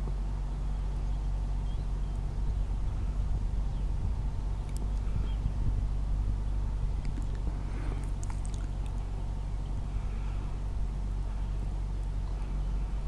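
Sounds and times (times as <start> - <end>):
motor humming: 0.0 - 13.0
faint high chirps and clicks: 4.6 - 5.1.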